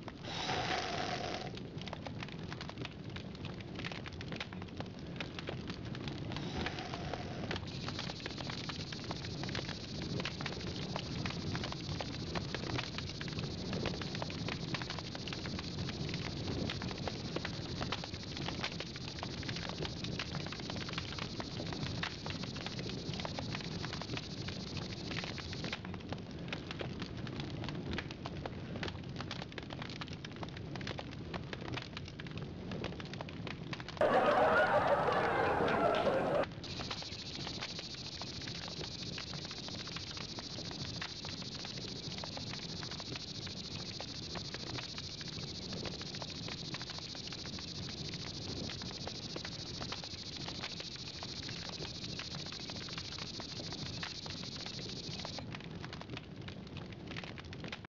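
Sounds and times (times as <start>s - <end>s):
campfire crackling and popping: 0.0s - 57.9s.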